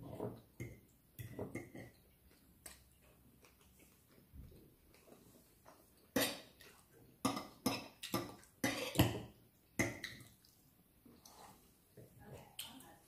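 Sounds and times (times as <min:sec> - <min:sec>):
dishes and cutlery clinking: 0:00.0 - 0:02.1.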